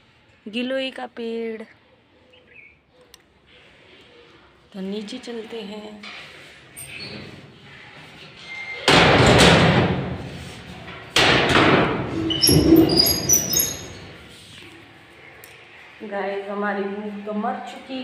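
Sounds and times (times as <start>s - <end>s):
sheet-metal door banging: 8.9s - 10.2s, 11.2s - 13.9s
short high squeaks: 12.1s - 14.3s.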